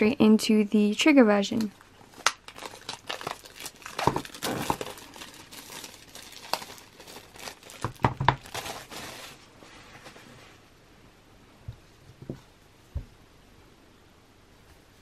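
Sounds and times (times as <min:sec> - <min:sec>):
packaging rustling and crinkling: 0:01.7 - 0:10.3.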